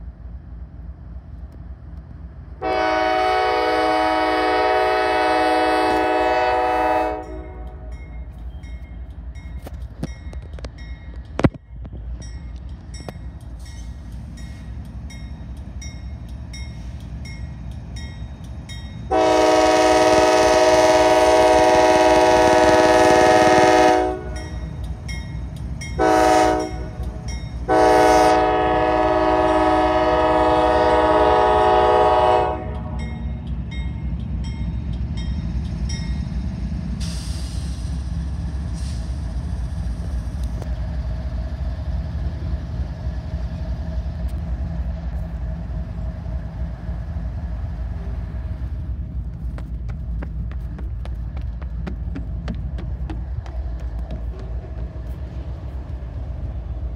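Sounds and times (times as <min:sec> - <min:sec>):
diesel locomotives rumbling: 0:00.0 - 0:56.9
locomotive air horn blasts: 0:02.6 - 0:07.9, 0:19.1 - 0:24.4, 0:26.0 - 0:33.0
crossing bell ringing: 0:07.2 - 0:19.3, 0:24.2 - 0:27.7, 0:32.7 - 0:36.4.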